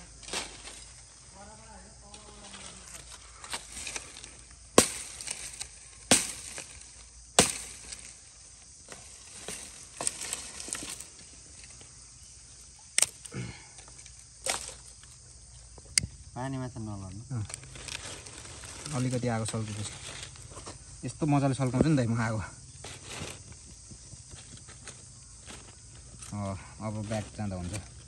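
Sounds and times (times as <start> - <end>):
light rustling and crackling: 0.2 - 11.9, 17.0 - 28.0
firewood cracking: 2.0 - 12.0, 12.8 - 16.1, 17.4 - 20.8.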